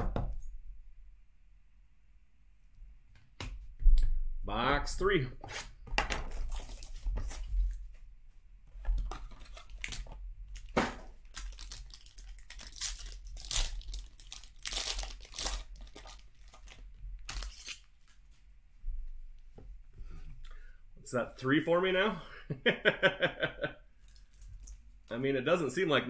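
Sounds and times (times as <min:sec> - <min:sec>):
foil wrapper tearing and crinkling: 0:06.3 - 0:07.7, 0:09.0 - 0:18.1.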